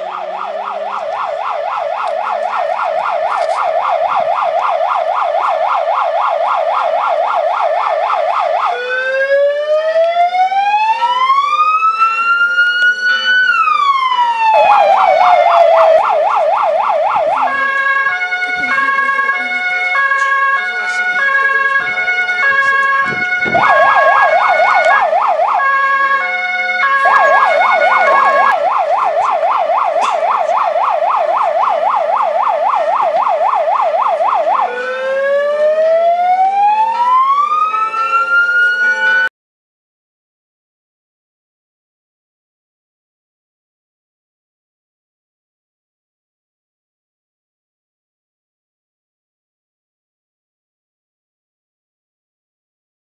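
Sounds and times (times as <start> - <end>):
emergency vehicle siren: 0.0 - 39.3.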